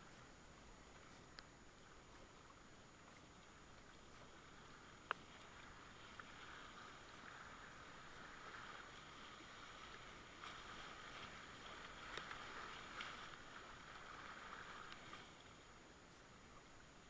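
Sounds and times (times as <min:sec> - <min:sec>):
paddle churning water: 0:00.0 - 0:17.0.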